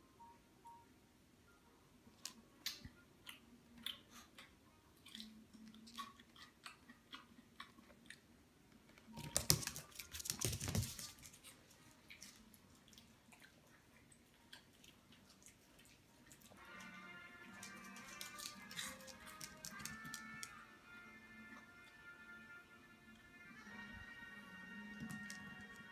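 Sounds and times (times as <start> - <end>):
chewing crunchy food: 2.6 - 8.3, 11.3 - 16.6, 17.6 - 20.1.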